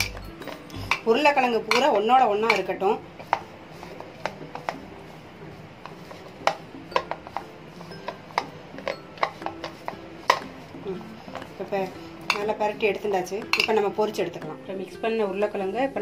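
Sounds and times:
metal spoon clinking against bowl: 0:00.0 - 0:02.7, 0:12.2 - 0:12.6, 0:13.4 - 0:13.9.

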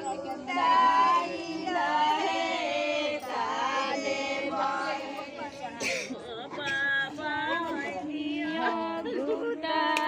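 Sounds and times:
women singing folk song: 0:00.0 - 0:10.0.

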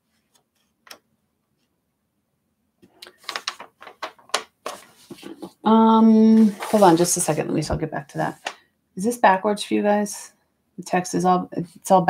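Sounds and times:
paper rustling and crinkling: 0:03.0 - 0:05.7, 0:06.3 - 0:08.6
person speaking: 0:04.7 - 0:10.2, 0:10.8 - 0:12.0.

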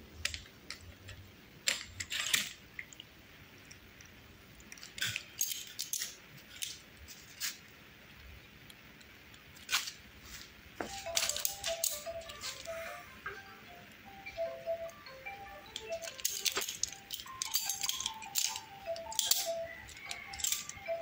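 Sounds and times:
plastic clicks and rattles: 0:00.2 - 0:03.0, 0:15.7 - 0:21.0.

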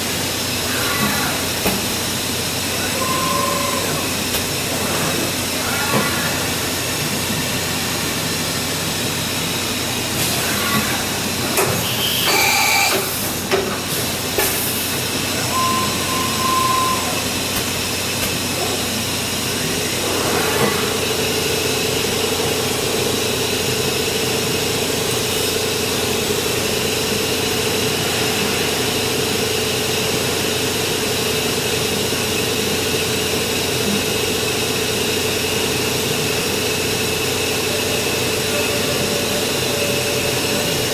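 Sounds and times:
brief machine whine: 0:02.9 - 0:04.2, 0:11.8 - 0:13.2, 0:15.3 - 0:17.4.

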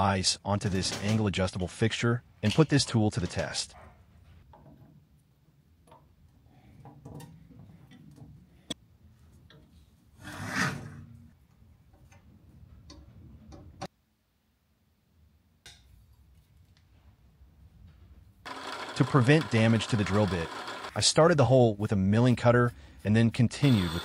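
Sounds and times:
metal scraping rub: 0:10.2 - 0:11.1.

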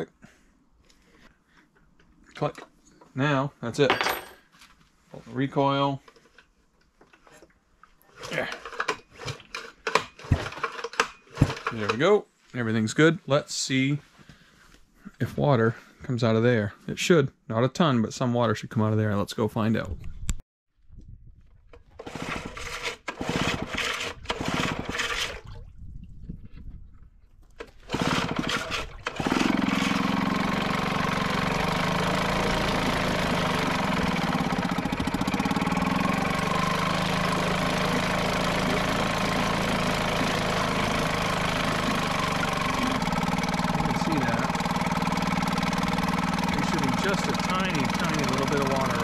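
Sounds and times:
outboard motor cranking and coughing: 0:08.0 - 0:12.0, 0:21.8 - 0:25.4, 0:27.6 - 0:49.0
outboard motor running: 0:22.0 - 0:25.4, 0:27.7 - 0:49.0
propeller churning water: 0:24.3 - 0:26.0, 0:27.6 - 0:49.0.

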